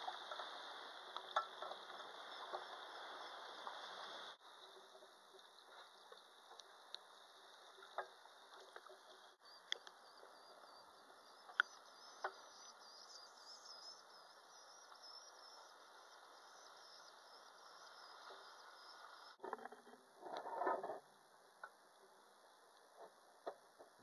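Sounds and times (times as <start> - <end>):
sharp clicks and crackles: 4.8 - 10.0, 11.4 - 12.5.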